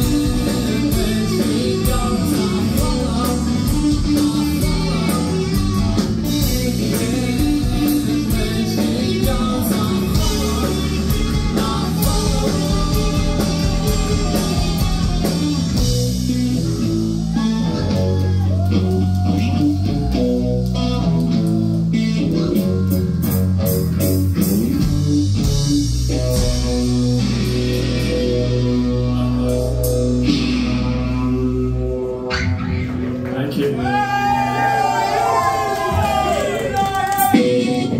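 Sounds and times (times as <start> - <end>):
drum kit with cymbals: 0.0 - 28.9
bass guitar: 0.0 - 37.9
electric guitar: 0.0 - 37.9.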